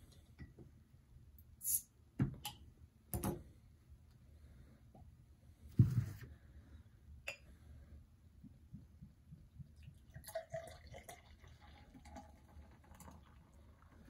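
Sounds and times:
beer pouring into glass: 0:09.9 - 0:14.0.

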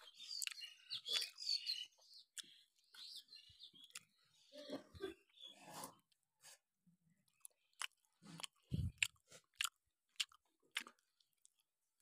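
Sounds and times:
close-up chewing: 0:00.0 - 0:03.0, 0:03.8 - 0:04.2, 0:07.2 - 0:12.0.

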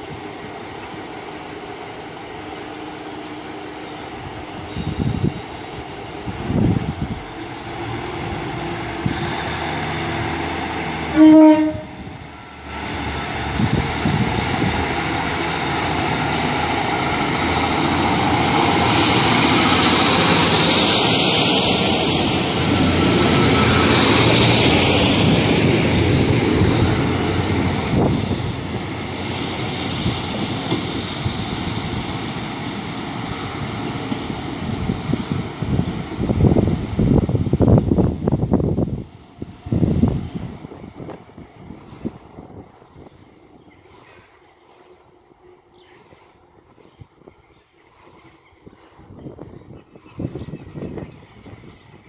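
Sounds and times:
train carriages rushing past: 0:00.0 - 0:43.2
diesel train engines: 0:00.0 - 0:52.0
two-tone train horn: 0:11.1 - 0:12.2.

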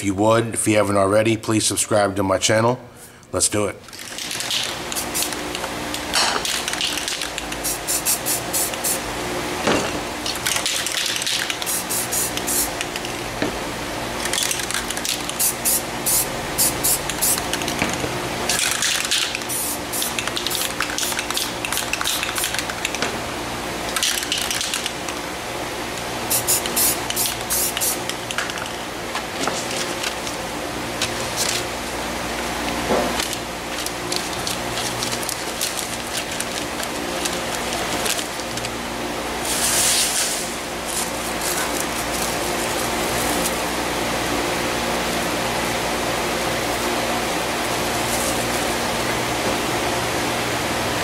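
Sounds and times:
spray paint cans hissing: 0:04.2 - 0:05.4, 0:06.4 - 0:09.1, 0:10.5 - 0:13.1, 0:14.3 - 0:17.8, 0:18.5 - 0:23.0, 0:26.3 - 0:28.1, 0:39.4 - 0:43.6.

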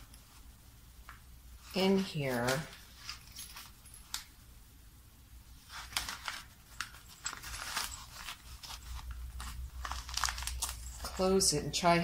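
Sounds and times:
fabric pouch crinkling: 0:01.6 - 0:04.3, 0:05.6 - 0:11.4.

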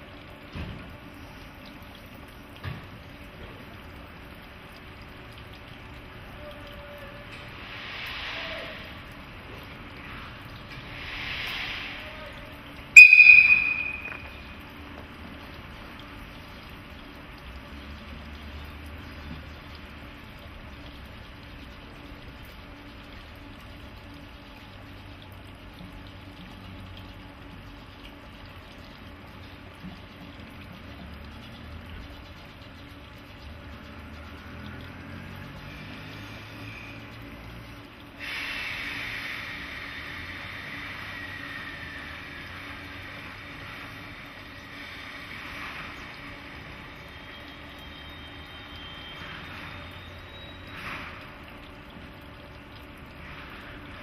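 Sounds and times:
electric locomotive hiss and hum: 0:06.2 - 0:14.8, 0:34.4 - 0:51.4
faint high whine: 0:13.0 - 0:14.7.

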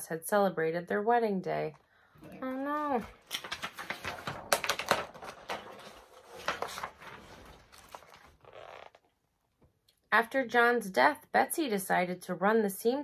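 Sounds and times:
paper pages rustling and clicking: 0:02.8 - 0:09.0.

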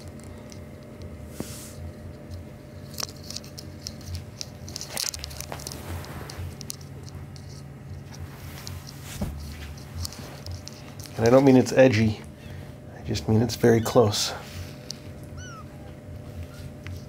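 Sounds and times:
low steady hum: 0:00.0 - 0:17.0
kittens rustling on cloth: 0:01.3 - 0:01.9, 0:02.7 - 0:12.0.

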